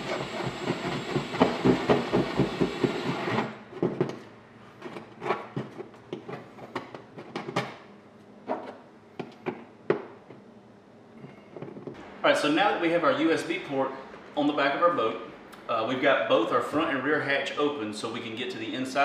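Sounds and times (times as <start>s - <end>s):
cordless drill cutting plastic: 0.0s - 3.5s.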